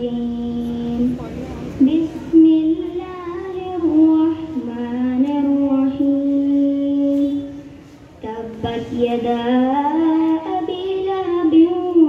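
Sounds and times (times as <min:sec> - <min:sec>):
boy chanting into a microphone: 0:00.0 - 0:12.0.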